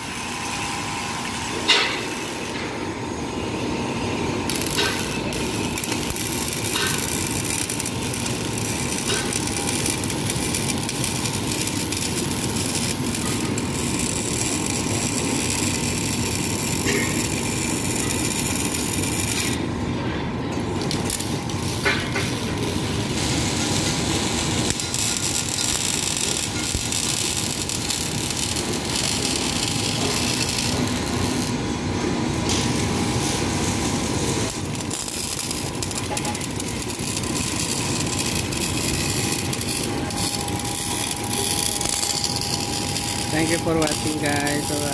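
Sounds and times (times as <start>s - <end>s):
arc welding crackle and hiss: 0.0s - 44.9s
steady hum: 0.0s - 44.9s.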